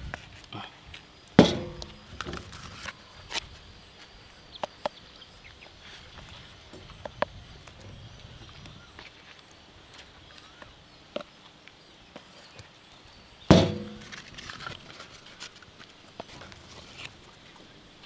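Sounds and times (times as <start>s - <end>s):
loud metallic clang: 1.4s - 2.1s, 13.5s - 14.1s.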